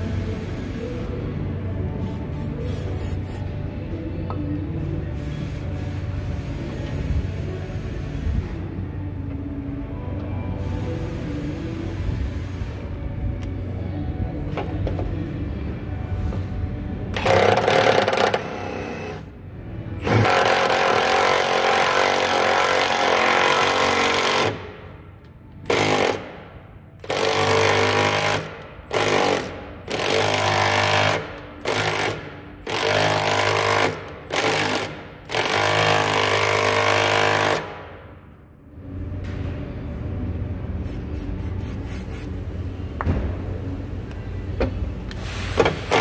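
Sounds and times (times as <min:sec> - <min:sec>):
impact wrench hammering: 0:17.2 - 0:19.2, 0:20.0 - 0:24.9, 0:25.6 - 0:26.4, 0:27.0 - 0:38.0.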